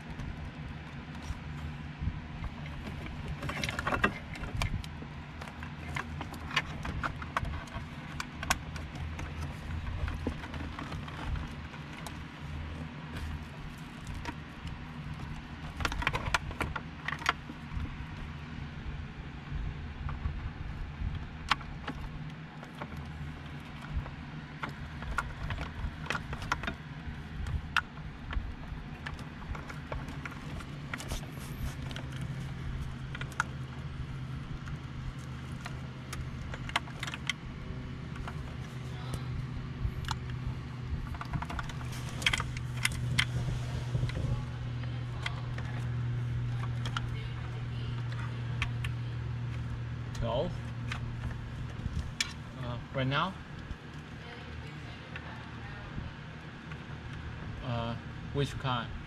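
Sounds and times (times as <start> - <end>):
low hum: 0.0 - 59.0
plastic connectors clicking and rattling: 40.0 - 52.6.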